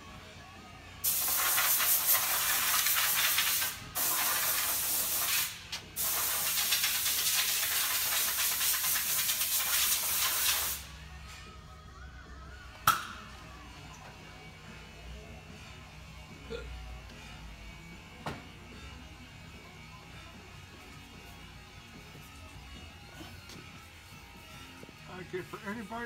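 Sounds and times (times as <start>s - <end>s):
air blow gun hissing: 1.0s - 11.0s.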